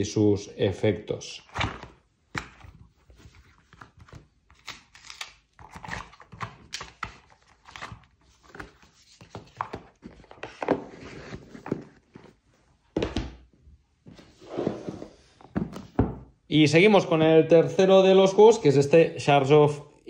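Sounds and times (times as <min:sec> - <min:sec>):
cards clicking and rustling: 0:01.5 - 0:12.2.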